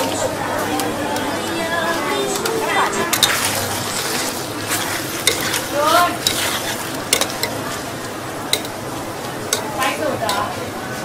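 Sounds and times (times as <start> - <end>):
utensils knocking against pan: 2.4 - 3.6, 4.7 - 7.6, 8.5 - 8.8, 9.5 - 10.5
food sizzling in a wok: 3.1 - 10.6.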